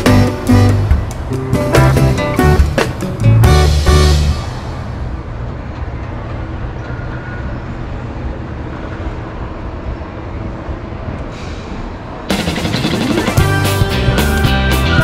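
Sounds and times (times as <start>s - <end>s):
background music: 0.0s - 4.8s, 12.3s - 15.0s.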